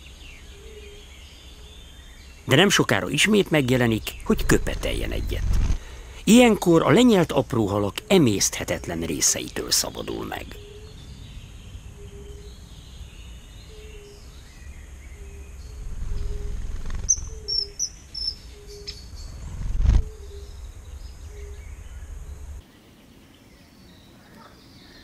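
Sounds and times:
wind rumble on microphone: 4.2 - 5.8, 10.9 - 17.8, 19.0 - 22.6
high sharp bird calls: 8.1 - 22.5.

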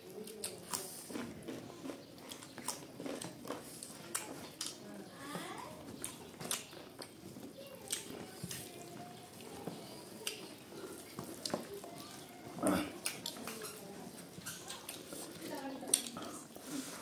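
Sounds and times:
chewing and wet mouth smacks: 0.1 - 4.8, 6.0 - 7.2, 10.2 - 11.6, 12.9 - 16.7.

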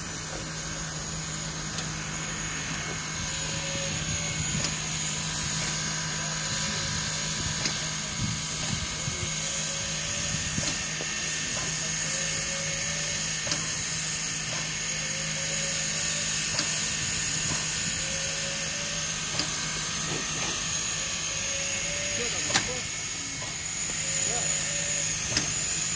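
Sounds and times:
high whine: 0.0 - 13.3
mechanical hum: 0.0 - 25.9
steam locomotive hissing: 0.0 - 25.9.

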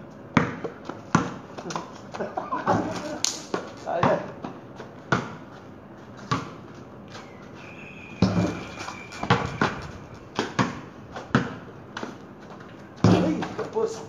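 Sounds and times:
basketball bouncing on concrete: 0.3 - 1.9, 2.7 - 6.8, 8.2 - 14.0
ball striking backboard: 8.2 - 11.6.

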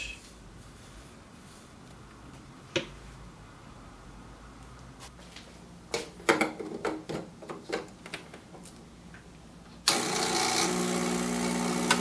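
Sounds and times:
espresso pump humming: 9.9 - 12.0.

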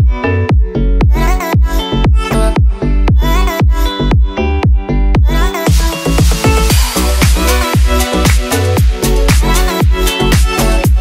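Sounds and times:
electronic dance music: 5.4 - 11.0.

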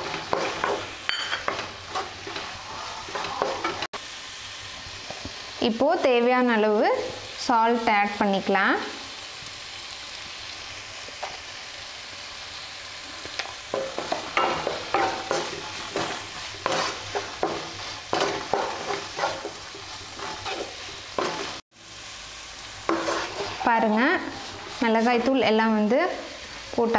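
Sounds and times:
wooden spatula scraping a pan: 0.0 - 3.9, 13.7 - 21.6, 22.9 - 26.6
onions and peppers sizzling in pan: 0.0 - 26.9.

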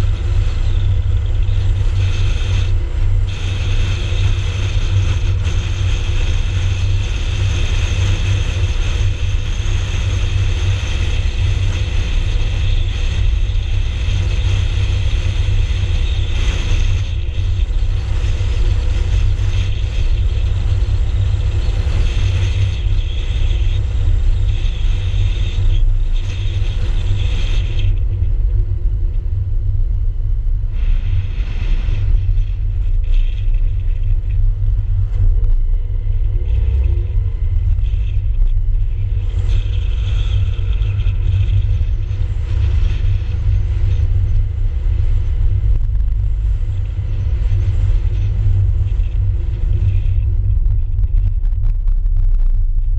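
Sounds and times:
road and wind noise rumble: 0.0 - 52.9.

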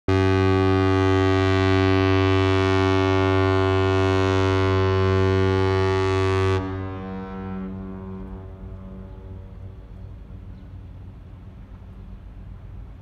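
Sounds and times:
ship horn blast: 0.1 - 10.5.

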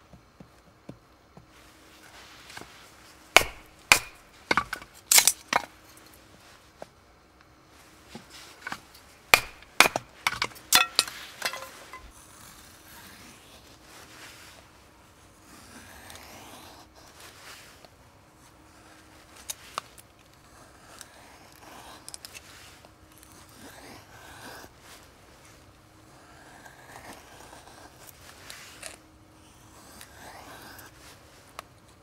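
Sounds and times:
firewood being split: 3.3 - 5.7, 8.6 - 12.1
wood rubbing and scraping: 8.1 - 12.1.

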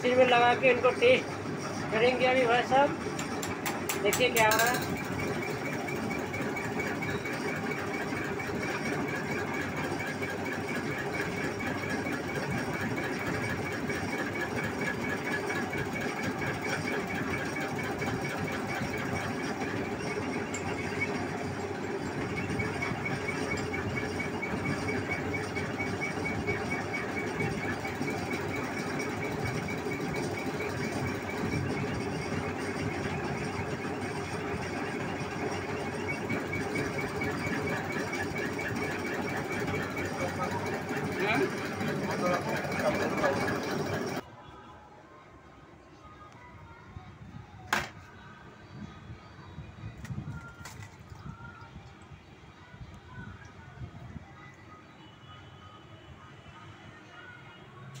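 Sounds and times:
injector test bench chatter: 0.0 - 44.2.

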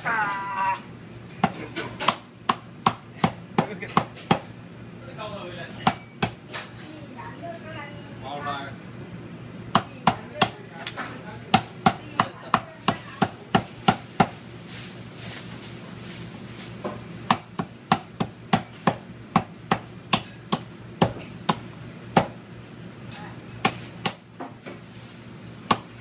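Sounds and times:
cleaver chopping on wooden block: 1.4 - 4.5, 17.3 - 21.6, 23.6 - 24.2.

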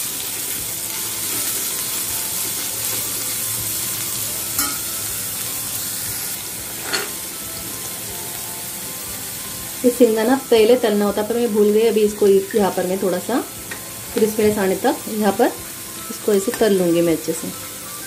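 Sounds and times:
onions sizzling in hot oil: 0.0 - 18.0.

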